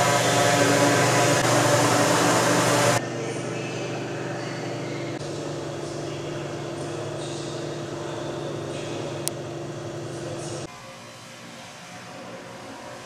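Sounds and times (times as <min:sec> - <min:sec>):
machinery hum: 0:00.0 - 0:13.0.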